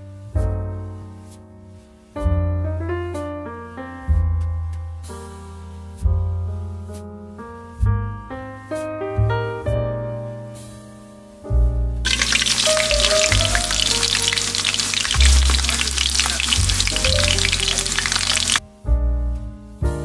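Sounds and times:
chicken frying in oil: 0:12.0 - 0:18.6
piano music: 0:12.1 - 0:18.6.

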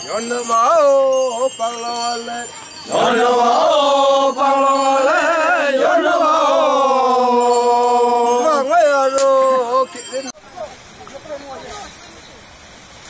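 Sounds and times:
men chanting in unison: 0:00.1 - 0:10.1.

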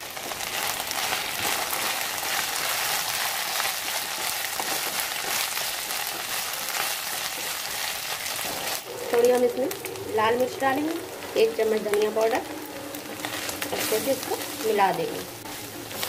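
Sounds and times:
vegetables sizzling in hot oil: 0:00.0 - 0:16.0
wooden spatula stirring: 0:00.5 - 0:08.8, 0:13.0 - 0:16.0.

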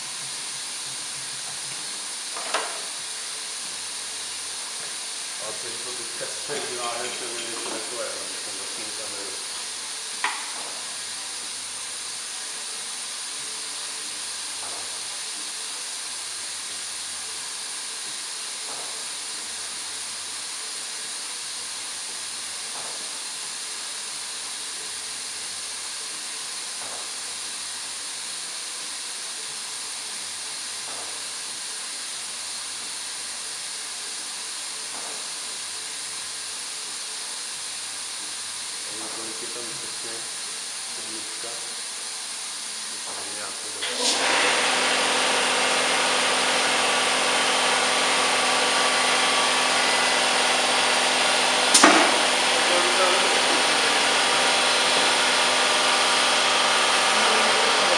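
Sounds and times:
bottle-filling machine hissing: 0:00.0 - 0:28.2, 0:29.1 - 0:57.9
sharp click: 0:51.7 - 0:52.1.

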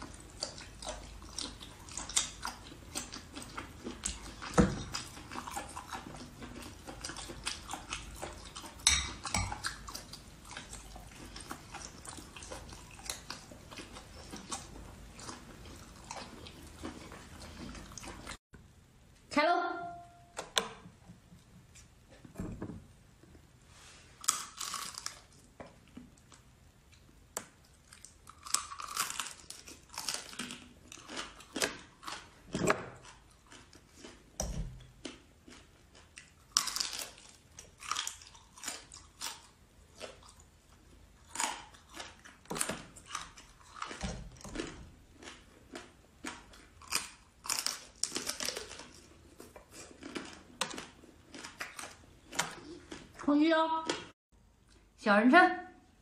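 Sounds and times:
person chewing crunchy food: 0:00.0 - 0:18.4, 0:23.2 - 0:53.3.

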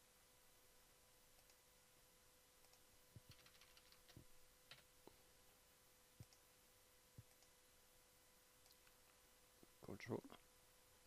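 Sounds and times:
faint steady hum: 0:00.0 - 0:11.0
mouse and keyboard clicks: 0:01.4 - 0:01.6, 0:02.6 - 0:04.9.

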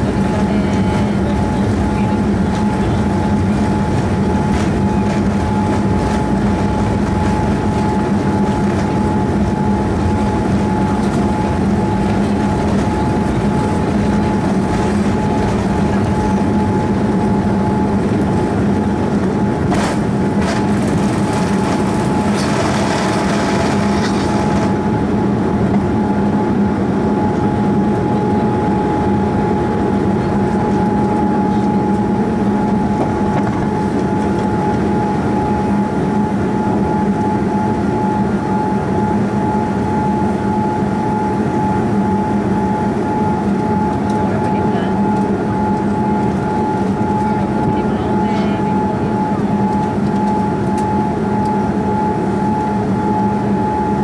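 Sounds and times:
wheels rumbling on runway: 0:00.0 - 0:26.1
jet engines droning: 0:00.0 - 0:54.0.

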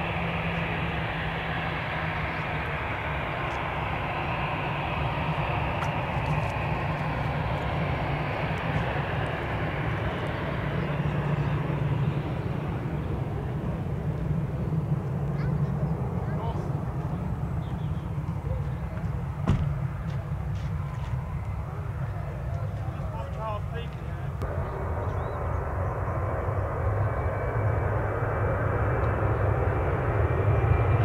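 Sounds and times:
jet engines roaring: 0:00.0 - 0:31.0
low hum: 0:24.3 - 0:31.0.

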